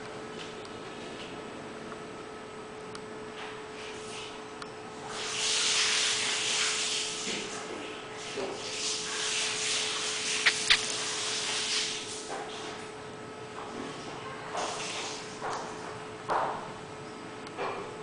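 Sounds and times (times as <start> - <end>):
sharp clicks: 10.4 - 10.9.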